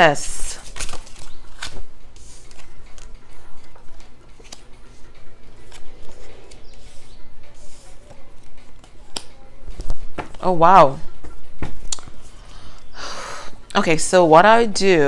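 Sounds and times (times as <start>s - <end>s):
cards drawn and laid on cloth: 5.6s - 9.9s.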